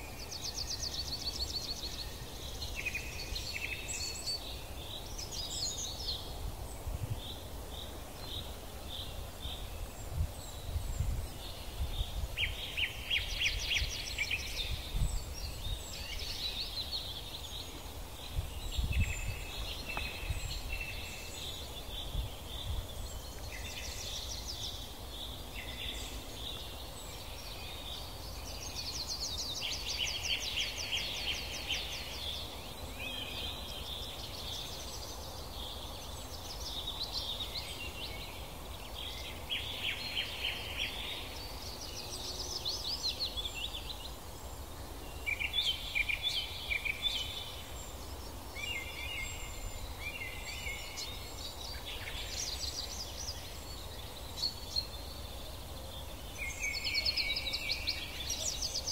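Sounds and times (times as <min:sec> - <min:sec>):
songbirds singing: 0:00.0 - 0:58.9.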